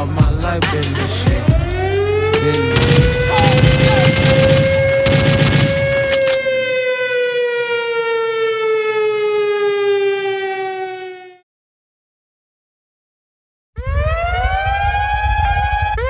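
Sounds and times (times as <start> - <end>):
air-raid siren winding down: 1.1 - 11.4, 13.8 - 16.0
loud noisy bass hits: 2.7 - 6.0.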